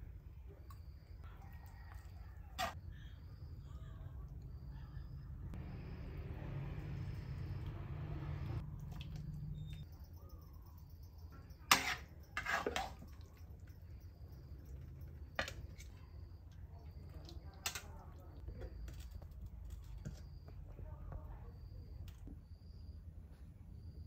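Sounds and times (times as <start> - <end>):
low hum: 2.8 - 10.8.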